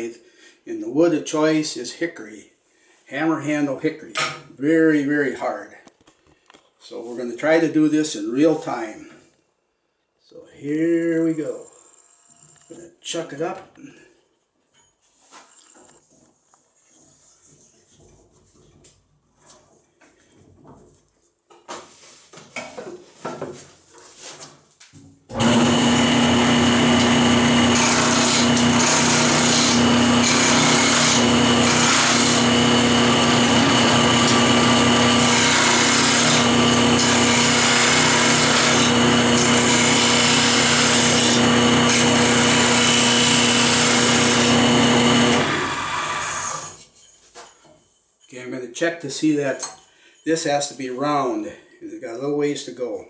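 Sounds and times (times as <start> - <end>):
wood lathe motor hum: 11.4 - 12.8, 25.3 - 46.8
turning tool scraping wood: 25.3 - 48.4.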